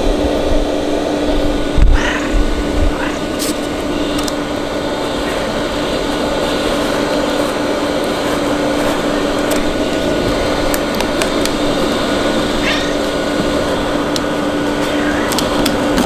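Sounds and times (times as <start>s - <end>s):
heater blower fan humming: 0.0s - 16.0s.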